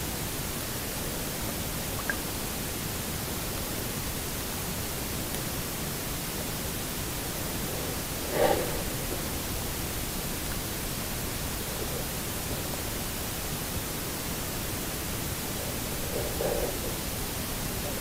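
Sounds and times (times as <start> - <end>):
muffled underwater hiss: 0.0 - 18.0
faint muffled sound: 6.2 - 18.0.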